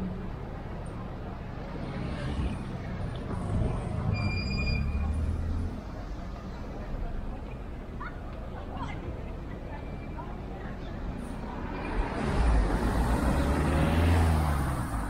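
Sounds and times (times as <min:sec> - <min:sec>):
vehicle engine rumble passing: 0:01.1 - 0:07.4, 0:10.1 - 0:15.0
brief high-pitched squeal: 0:04.0 - 0:05.3.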